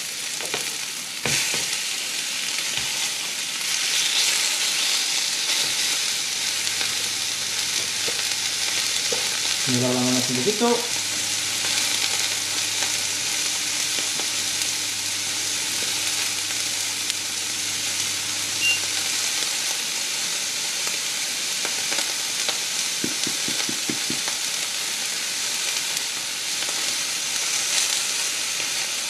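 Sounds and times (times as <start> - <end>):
steak sizzling in frying pan: 0.0 - 29.0
soft knocks: 23.0 - 24.3.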